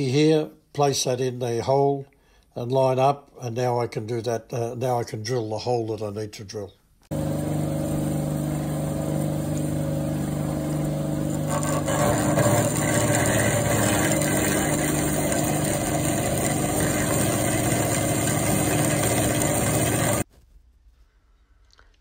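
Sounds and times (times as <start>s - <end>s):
bandsaw cutting steel: 11.3s - 20.2s.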